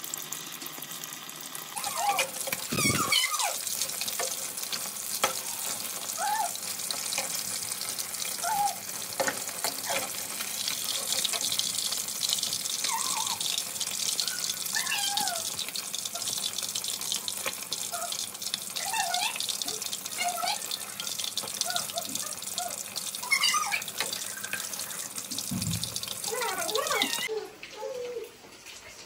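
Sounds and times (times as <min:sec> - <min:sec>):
fish deep-frying sizzle: 0:00.0 - 0:29.0.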